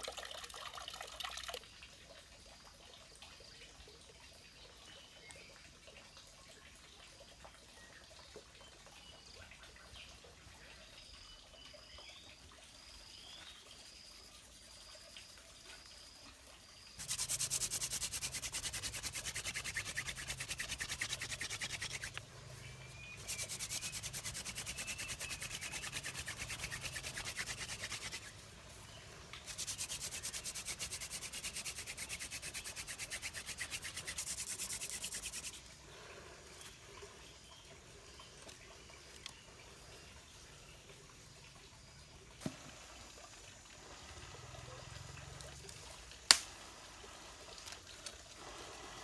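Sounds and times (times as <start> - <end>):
hand drill dry rubbing: 17.0 - 22.2, 23.2 - 28.3, 29.4 - 35.6.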